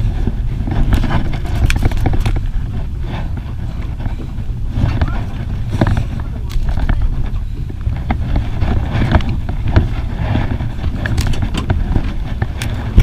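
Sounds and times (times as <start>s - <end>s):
boat noise on water: 0.0s - 13.0s
wind rumble: 0.0s - 13.0s
fishing line clicks and knocks: 0.9s - 2.5s, 9.0s - 13.0s.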